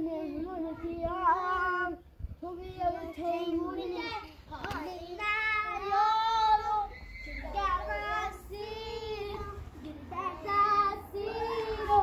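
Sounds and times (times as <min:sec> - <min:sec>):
young child singing: 0:00.0 - 0:12.0.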